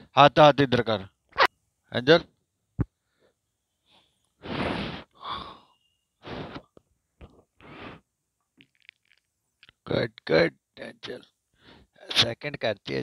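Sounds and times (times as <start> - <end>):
breathy huffs: 3.1 - 6.7.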